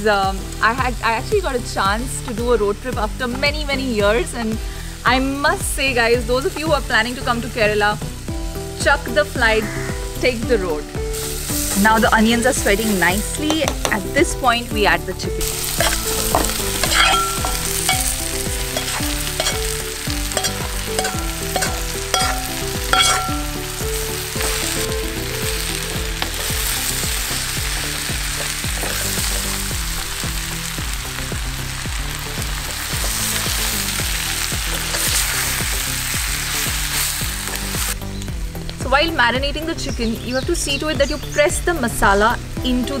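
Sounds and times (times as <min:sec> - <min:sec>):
background music: 0:00.0 - 0:43.0
chicken sizzling in oil: 0:03.8 - 0:38.8
spatula knocking pan: 0:13.5 - 0:14.0, 0:15.6 - 0:23.8.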